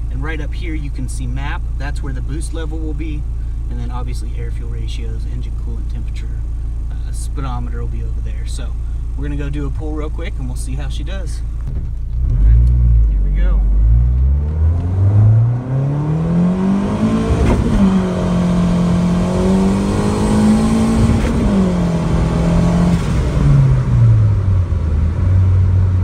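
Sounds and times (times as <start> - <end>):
turbocharged car engine revving: 11.3 - 26.0.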